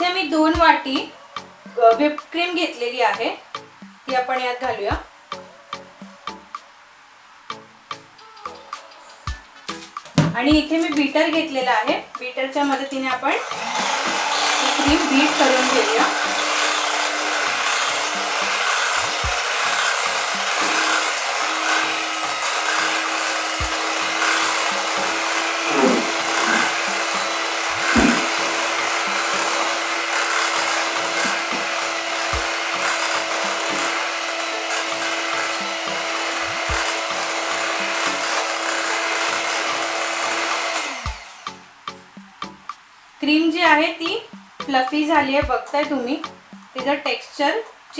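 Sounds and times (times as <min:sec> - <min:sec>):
electric hand mixer whipping cream: 0:13.2 - 0:41.5.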